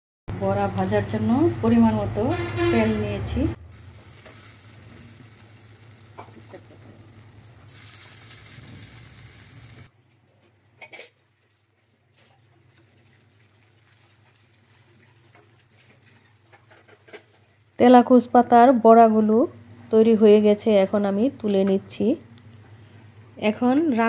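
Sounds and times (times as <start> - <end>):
oil sizzling in a frying pan: 3.5 - 9.9, 11.7 - 23.9.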